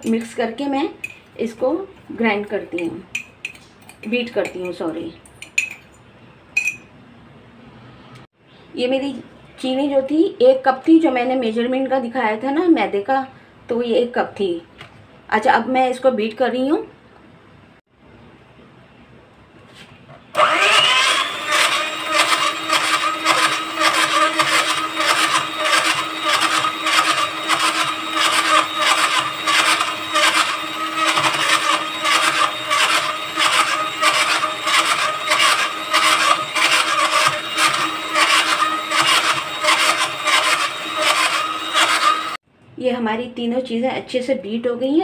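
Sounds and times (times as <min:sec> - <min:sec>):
hand mixer motor whine: 0:20.4 - 0:42.4.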